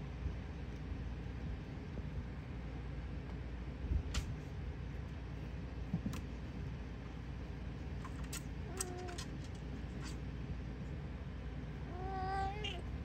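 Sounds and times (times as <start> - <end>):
low background rumble: 0.0 - 13.0
faint cat meow: 11.8 - 13.0.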